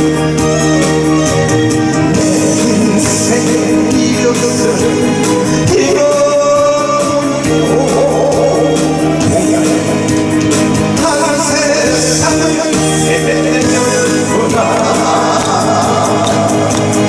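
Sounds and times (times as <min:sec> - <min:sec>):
backing music with steady beat: 0:00.0 - 0:17.0
man singing into microphone: 0:02.0 - 0:09.5, 0:11.0 - 0:17.0.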